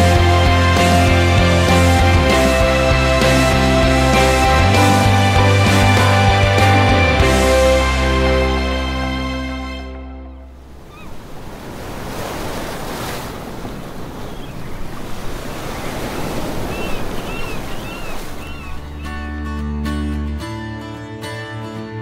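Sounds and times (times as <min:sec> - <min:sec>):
music: 0:00.0 - 0:10.5, 0:17.9 - 0:22.0
ocean surf washing: 0:10.5 - 0:19.3.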